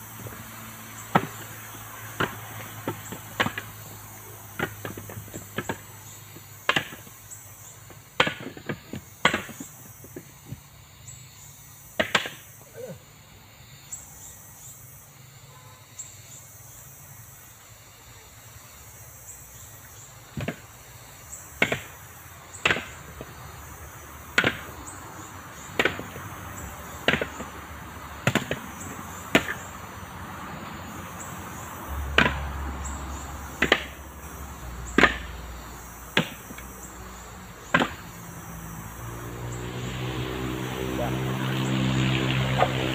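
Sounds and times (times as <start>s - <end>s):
coconuts knocking onto a pile: 2.1s - 3.7s, 6.7s - 7.0s, 8.2s - 9.7s, 12.0s - 12.4s, 20.3s - 20.6s, 21.6s - 22.0s, 22.6s - 23.3s, 24.3s - 24.7s, 25.7s - 26.2s, 27.0s - 27.5s, 28.2s - 28.7s, 29.3s - 29.6s, 32.1s - 32.5s, 33.6s - 34.0s, 34.9s - 35.4s, 36.1s - 36.6s, 37.7s - 38.0s.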